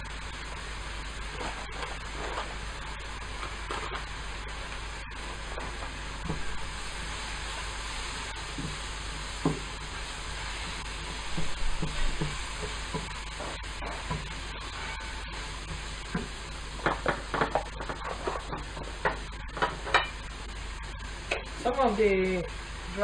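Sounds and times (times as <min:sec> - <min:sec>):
vegetables sizzling in a pan: 0:00.0 - 0:23.0
spatula scraping a pan: 0:09.9 - 0:20.2.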